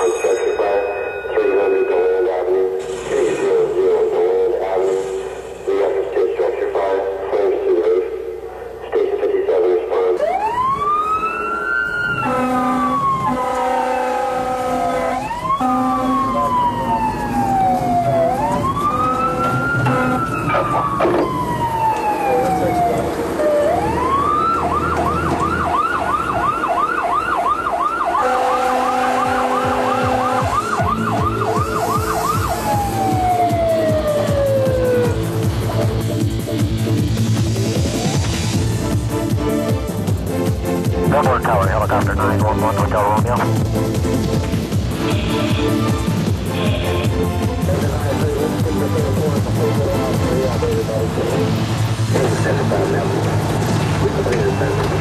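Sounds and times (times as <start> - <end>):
fire engine siren wailing and yelping: 9.8 - 36.5, 37.5 - 39.1.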